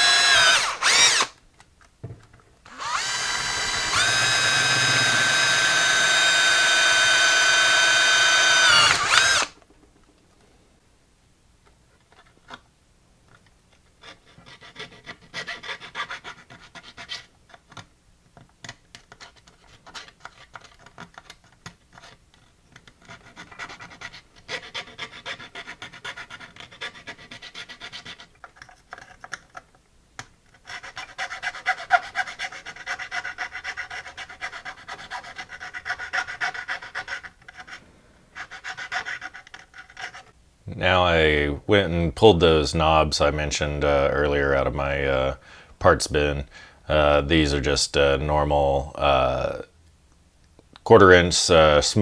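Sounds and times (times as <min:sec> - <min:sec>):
file rasping on plastic: 0:02.7 - 0:09.5, 0:14.0 - 0:17.3, 0:22.8 - 0:29.7, 0:30.5 - 0:37.8, 0:38.4 - 0:40.4.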